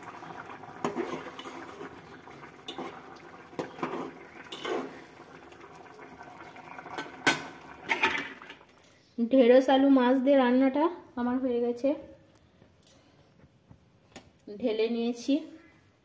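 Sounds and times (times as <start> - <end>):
curry bubbling in a pot: 0.0 - 8.8
metal spatula scraping a pot: 0.7 - 5.1.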